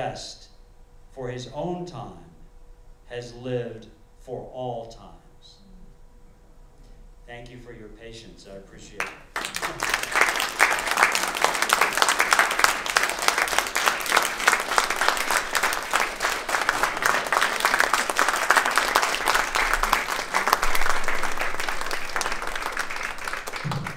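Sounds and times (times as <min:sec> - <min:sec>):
audience applauding: 0:09.0 - 0:23.9.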